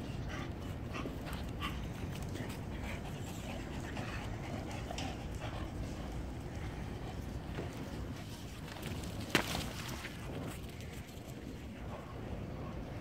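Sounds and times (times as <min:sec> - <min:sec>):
dog panting: 0:00.0 - 0:07.9.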